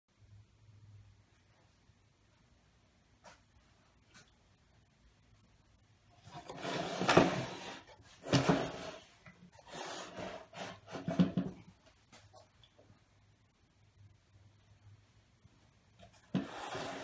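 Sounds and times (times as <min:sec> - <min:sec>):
wooden boxes scraping and knocking: 0:06.3 - 0:11.7, 0:16.2 - 0:17.0.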